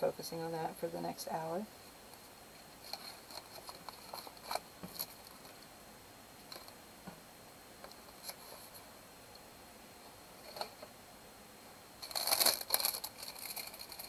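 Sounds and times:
paper crinkles and clicks: 2.8s - 5.6s, 12.0s - 14.0s.

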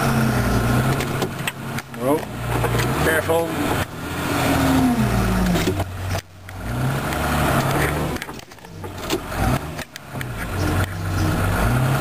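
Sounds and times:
groomer engine revving under load: 0.0s - 12.0s.

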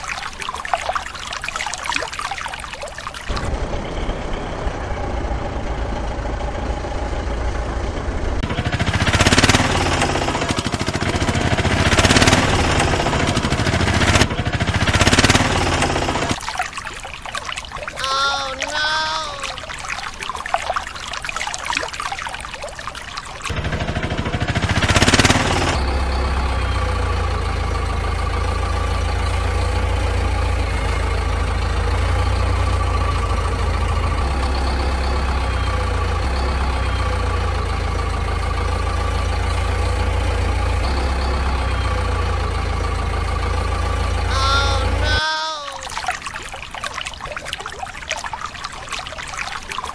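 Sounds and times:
water splashing in plastic tub: 0.0s - 3.5s, 15.0s - 23.5s, 44.3s - 49.9s
diesel engine idling: 3.5s - 14.8s, 23.6s - 45.1s.

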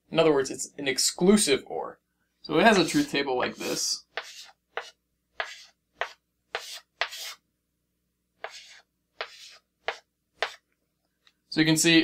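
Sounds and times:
chalk scraping on a blackboard: 2.7s - 7.4s, 8.4s - 10.6s.

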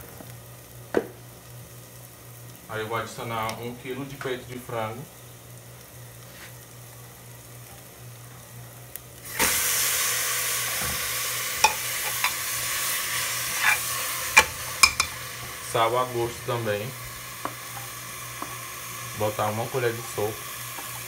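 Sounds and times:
chicken sizzling in butter: 0.0s - 21.0s
steel spoon clinking on pot: 14.4s - 15.2s.

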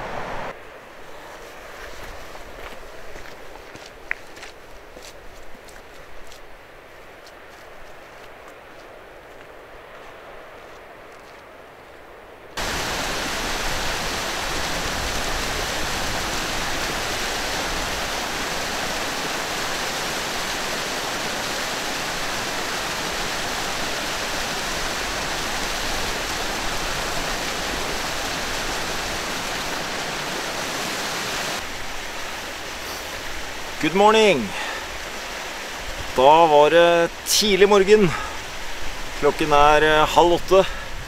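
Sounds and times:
stream rushing over rocks: 12.6s - 41.0s.

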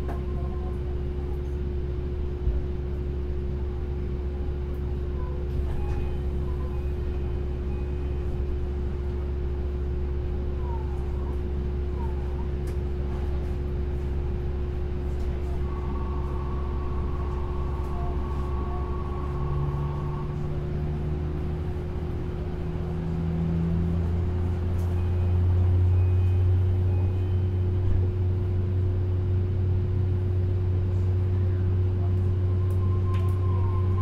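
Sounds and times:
train running hum and rumble: 0.0s - 34.0s
faint rising whine: 14.4s - 27.8s.

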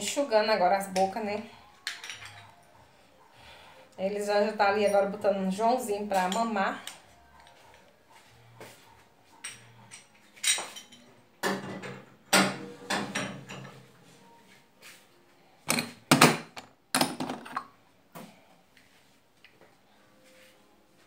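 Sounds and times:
metal pots clanking: 9.4s - 13.8s.

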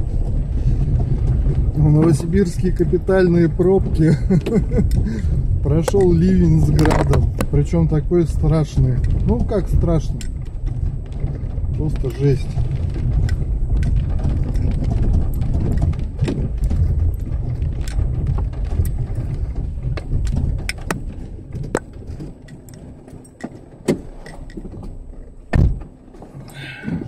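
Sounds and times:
engine and road rumble: 0.0s - 27.0s
clicks and knocks in car cabin: 0.1s - 27.0s
heavy thump: 10.2s - 22.4s, 23.8s - 27.0s.

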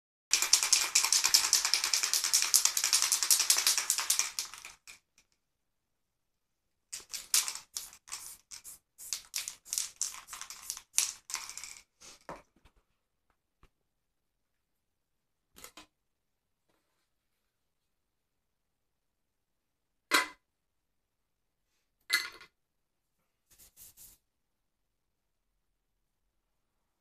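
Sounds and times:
spray-paint can hissing: 0.3s - 4.9s, 7.0s - 11.8s.

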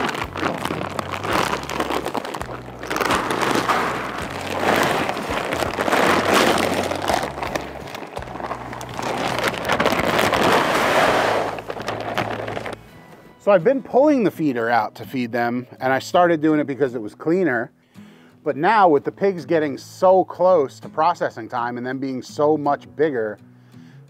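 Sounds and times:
feed pouring into trough: 0.0s - 12.8s.

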